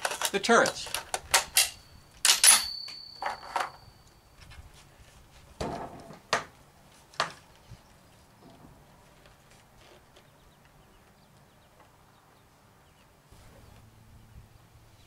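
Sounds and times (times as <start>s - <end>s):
rifle handling knocks and clicks: 0.0s - 3.8s.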